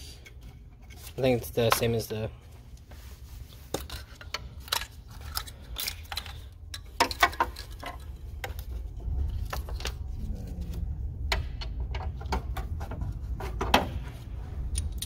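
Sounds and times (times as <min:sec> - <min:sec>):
steady low rumble: 0:06.0 - 0:15.0.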